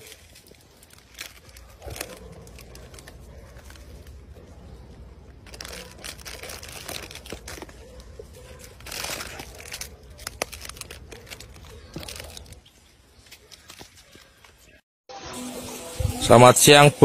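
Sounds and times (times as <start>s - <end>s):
plastic wrappers crinkling: 0.0s - 14.8s.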